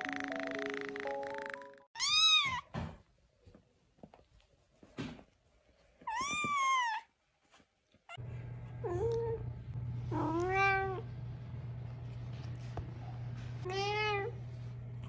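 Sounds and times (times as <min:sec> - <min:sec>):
kitten meowing: 0:02.0 - 0:02.6
cat meowing: 0:02.0 - 0:02.7, 0:06.1 - 0:07.1
steady low hum: 0:08.2 - 0:15.0.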